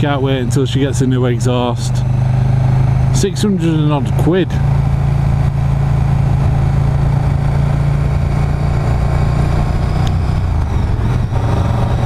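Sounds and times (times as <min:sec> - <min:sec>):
motorcycle engine cruising: 0:00.0 - 0:12.0
wind rush over microphone: 0:07.2 - 0:12.0.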